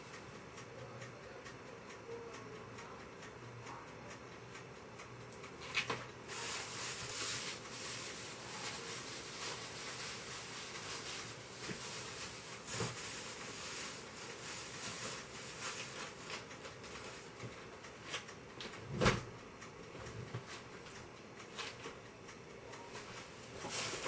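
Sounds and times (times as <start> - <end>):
rustling items in refrigerator: 5.6 - 18.3, 23.1 - 24.0.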